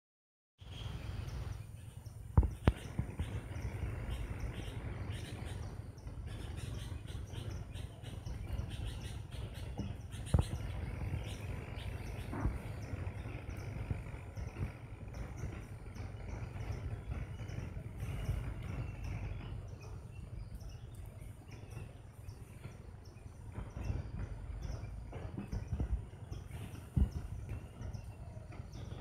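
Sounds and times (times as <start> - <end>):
birds chirping: 0.6 - 29.0
low rumble: 0.7 - 29.0.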